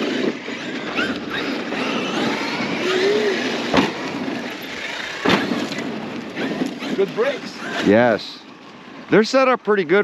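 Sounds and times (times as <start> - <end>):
rc truck tyres and motor: 0.0 - 10.0
landing thud: 3.7 - 4.0.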